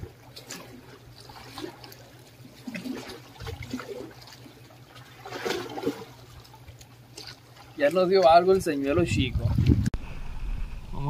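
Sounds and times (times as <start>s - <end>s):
small waves lapping on concrete: 0.0s - 8.9s.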